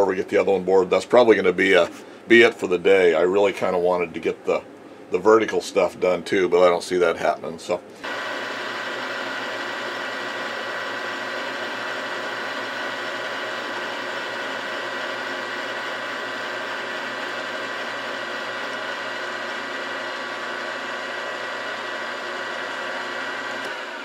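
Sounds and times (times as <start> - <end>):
milling machine motor whine: 8.0 - 24.0.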